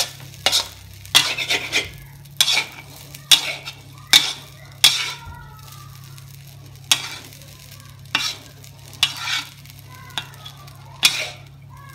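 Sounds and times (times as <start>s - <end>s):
metal spatula clanking on wok: 0.0s - 5.2s, 6.9s - 7.4s, 8.1s - 9.6s, 10.2s - 11.7s
rice sizzling: 0.0s - 11.9s.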